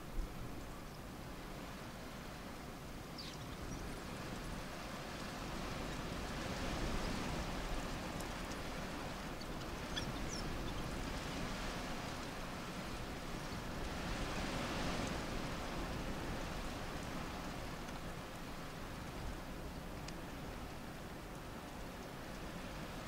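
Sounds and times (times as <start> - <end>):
wild dogs twittering squeaks: 9.8 - 10.8.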